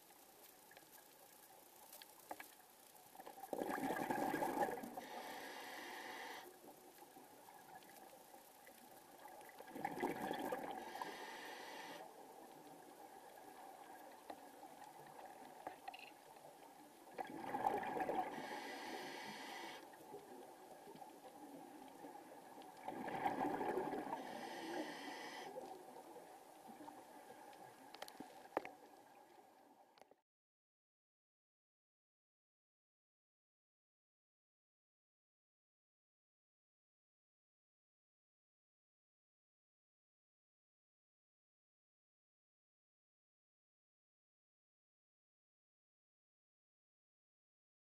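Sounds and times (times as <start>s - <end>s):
exhaled bubbles gurgling: 3.4s - 5.2s, 9.1s - 11.4s, 17.1s - 19.4s, 20.1s - 25.0s
regulator inhalation hiss: 5.0s - 6.6s, 10.8s - 12.1s, 18.3s - 20.0s, 24.2s - 25.6s.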